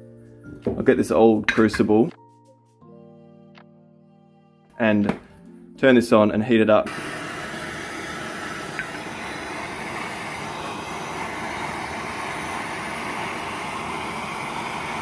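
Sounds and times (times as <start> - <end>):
gas torch flame hissing: 6.9 - 15.0.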